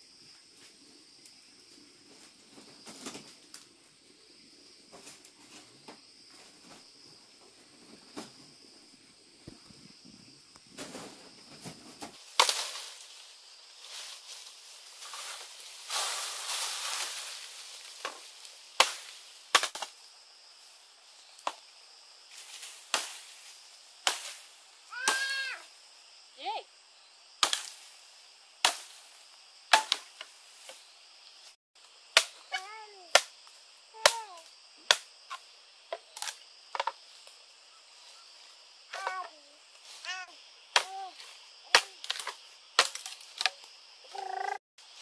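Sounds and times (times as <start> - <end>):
leaves rustling: 0.4 - 26.2, 27.4 - 45.0
machete chopping bamboo: 12.4 - 12.9, 18.8 - 19.9, 22.9 - 23.2, 24.0 - 24.4, 27.4 - 27.8, 28.6 - 29.0, 29.7 - 30.2, 32.2 - 32.4, 33.1 - 33.3, 34.0 - 35.1, 40.7 - 41.0, 41.7 - 43.6.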